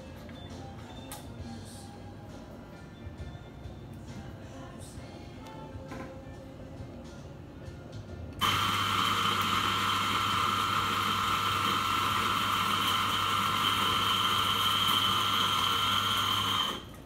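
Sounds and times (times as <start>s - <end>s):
coffee grinder motor whining: 8.4s - 17.0s.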